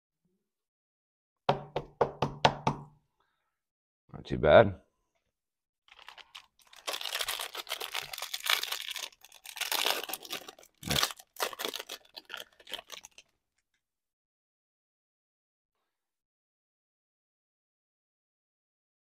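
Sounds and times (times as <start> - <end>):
foil wrapper tearing and crinkling: 5.9 - 13.3.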